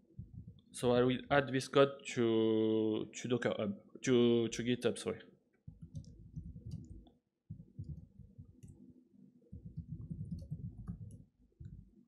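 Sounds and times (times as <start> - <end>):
dull low thuds: 0.2 - 0.6, 5.7 - 8.7, 9.5 - 12.0
laptop keyboard typing: 5.7 - 8.8, 9.6 - 11.9.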